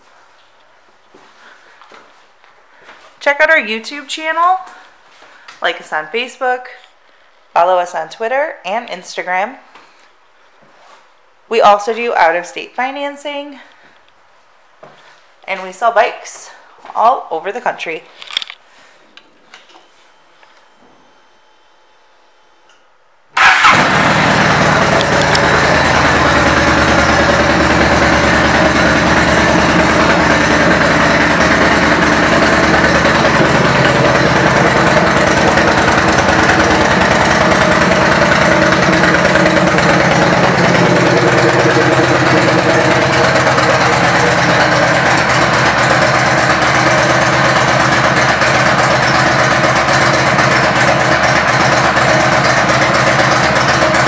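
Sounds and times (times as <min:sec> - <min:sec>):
motorcycle engine starting and idling: 0:23.4 - 0:54.0.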